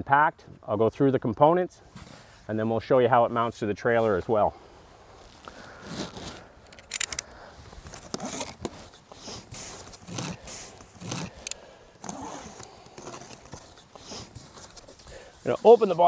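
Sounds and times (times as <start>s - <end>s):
packing tape being slit: 5.2s - 15.9s
cardboard flaps scraping and rustling: 7.8s - 11.4s, 12.0s - 16.0s.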